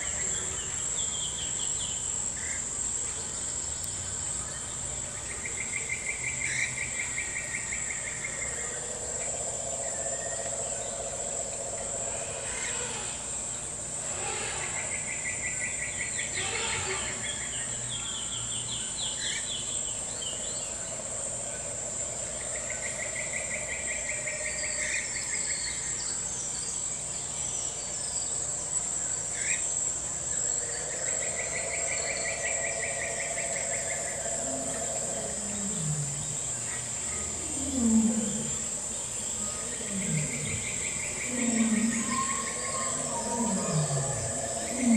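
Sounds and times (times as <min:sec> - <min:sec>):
insects trilling: 0:00.0 - 0:44.9
pulsed rattling call: 0:06.5 - 0:17.8, 0:29.3 - 0:44.9.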